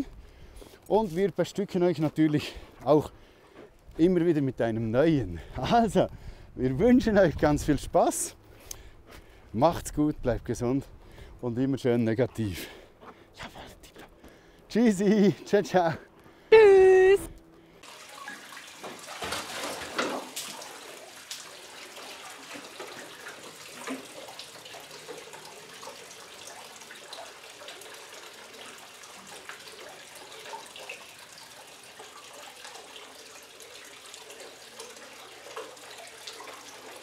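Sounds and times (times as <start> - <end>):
dog splashing in water: 17.8 - 25.9
tap water running into metal bucket: 17.8 - 37.0.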